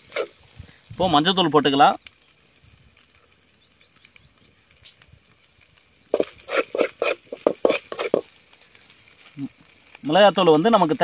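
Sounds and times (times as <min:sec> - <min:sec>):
metal spatula scraping pot: 0:06.1 - 0:08.3.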